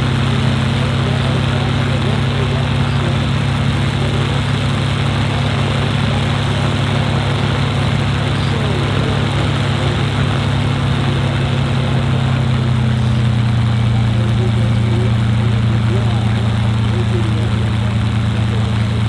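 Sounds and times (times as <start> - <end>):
propeller plane engine idling: 0.0 - 19.0.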